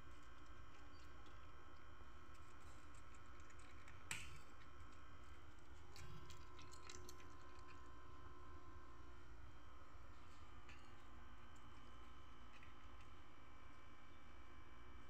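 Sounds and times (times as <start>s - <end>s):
faint steady hum: 0.0s - 15.0s
cat crunching dry kibble: 0.1s - 8.2s.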